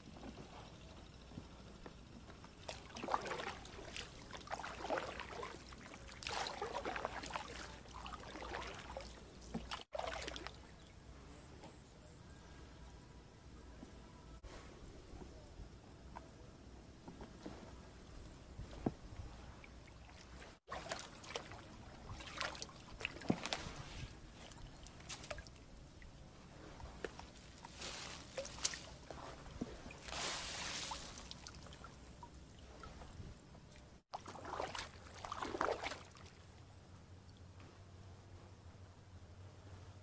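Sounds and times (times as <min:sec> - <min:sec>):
paddle splashing in water: 0:02.6 - 0:10.8, 0:19.4 - 0:25.6, 0:26.6 - 0:32.0, 0:34.1 - 0:36.4.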